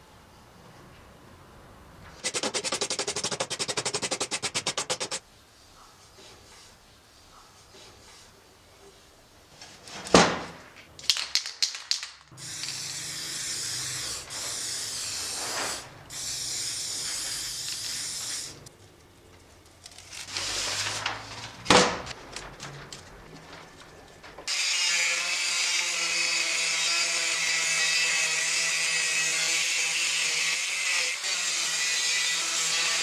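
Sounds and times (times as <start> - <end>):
spray paint can hissing: 2.2 - 5.2, 12.4 - 18.7.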